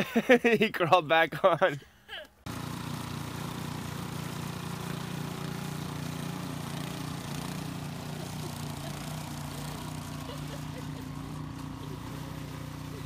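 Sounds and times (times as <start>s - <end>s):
snowblower engine running: 2.4s - 13.0s.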